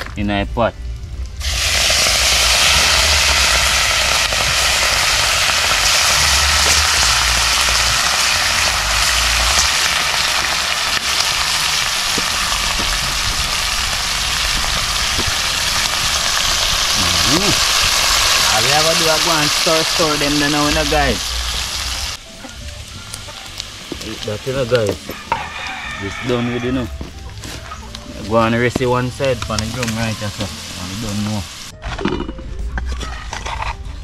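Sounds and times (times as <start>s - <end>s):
low rumble: 0.0s - 18.6s
faint fire crackles: 0.0s - 31.7s
meat sizzling in hot oil: 1.4s - 31.7s.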